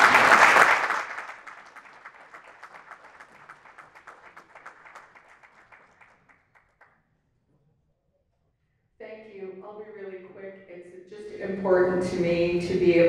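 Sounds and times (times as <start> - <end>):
audience clapping: 0.0 - 7.0.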